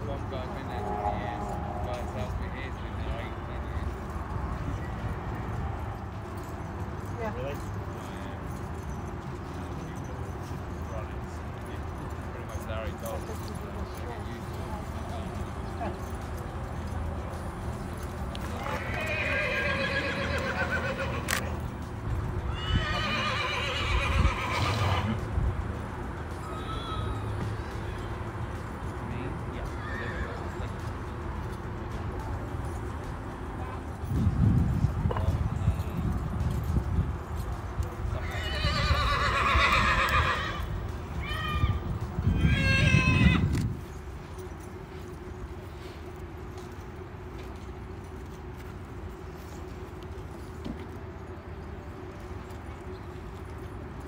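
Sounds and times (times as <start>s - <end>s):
horse whinnying: 18.6s - 21.5s, 22.5s - 25.2s, 29.8s - 30.4s, 38.2s - 43.6s.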